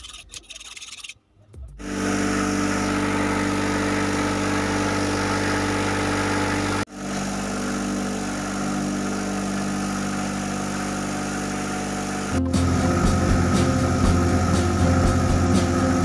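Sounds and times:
steel media churning through water: 0:00.0 - 0:01.2
motor hum: 0:01.8 - 0:16.0.

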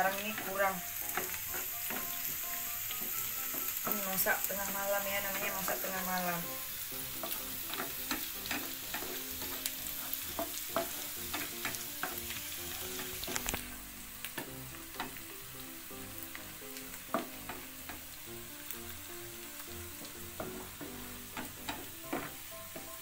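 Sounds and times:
food sizzling in hot oil: 0:00.0 - 0:23.0
spatula scraping a pan: 0:07.0 - 0:13.8.

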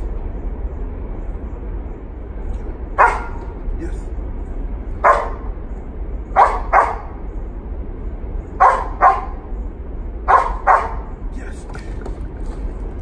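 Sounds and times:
dog barking: 0:03.0 - 0:03.5, 0:05.0 - 0:05.5, 0:06.3 - 0:07.2, 0:08.6 - 0:09.5, 0:10.3 - 0:11.1.

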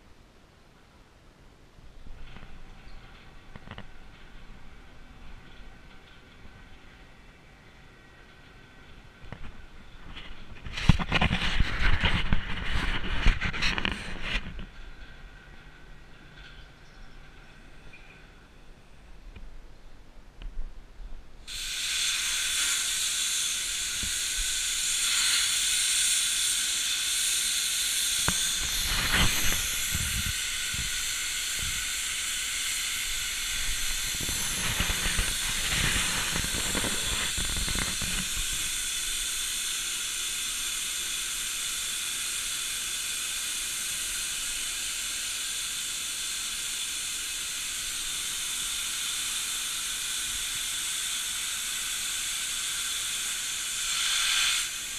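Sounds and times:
plasma torch hissing: 0:21.5 - 0:54.9.

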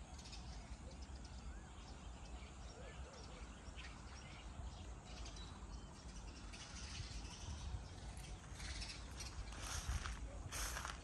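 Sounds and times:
bird chirps: 0:00.0 - 0:11.0
footsteps crunching on gravel: 0:08.3 - 0:11.0.

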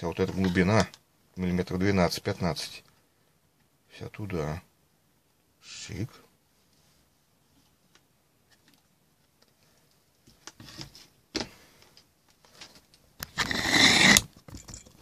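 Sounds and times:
loud rustling and scraping: 0:13.3 - 0:14.3.

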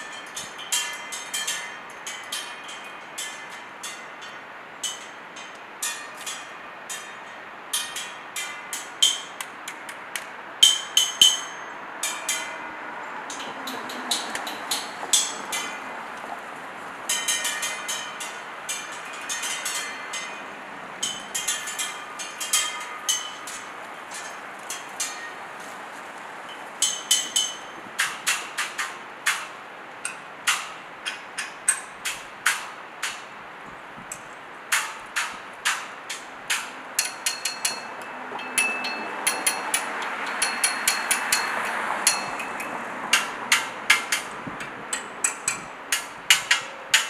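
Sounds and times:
sharp clicks and ringing taps: 0:34.7 - 0:47.0.

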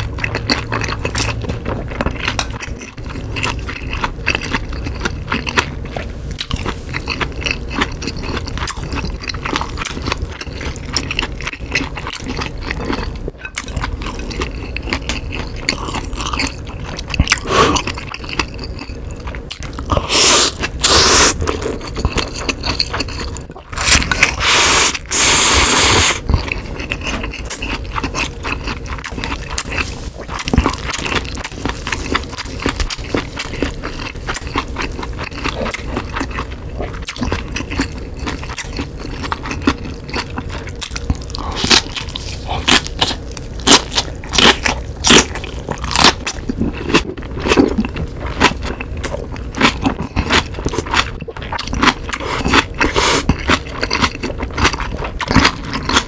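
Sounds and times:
wet chewing: 0:00.0 - 0:56.0
crunchy bites: 0:19.5 - 0:56.0
slurping noodles: 0:19.9 - 0:21.8, 0:23.8 - 0:26.2, 0:52.2 - 0:53.4.

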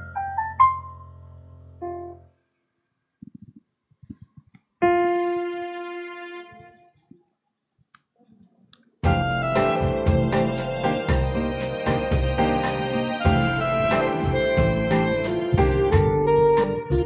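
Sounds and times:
keyboard music: 0:04.8 - 0:06.8, 0:09.0 - 0:17.0.

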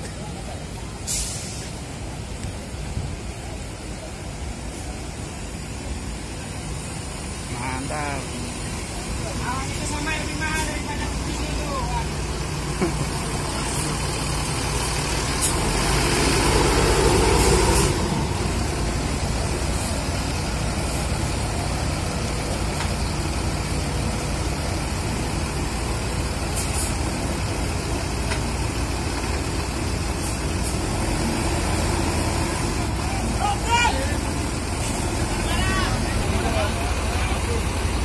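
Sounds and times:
diesel engine idling: 0:00.0 - 0:38.0
loud rush of noise: 0:00.0 - 0:38.0.

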